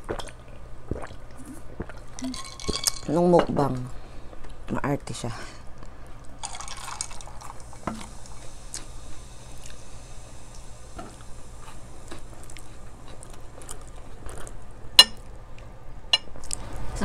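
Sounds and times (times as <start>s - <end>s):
people chewing and eating: 0.0s - 2.4s, 10.5s - 15.7s.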